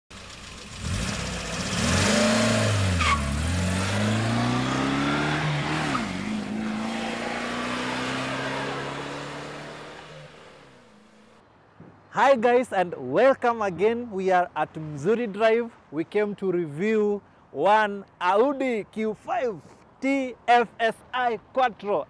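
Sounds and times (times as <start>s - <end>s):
car engine accelerating: 0.1s - 11.2s.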